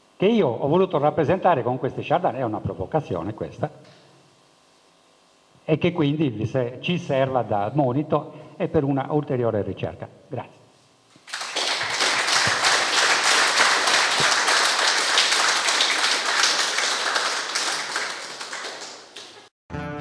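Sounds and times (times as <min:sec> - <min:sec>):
audience applauding: 0:11.2 - 0:19.5.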